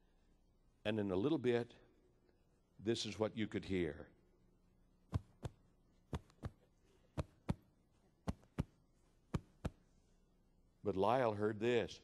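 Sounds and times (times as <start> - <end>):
heartbeat: 5.1 - 6.6, 8.3 - 9.8.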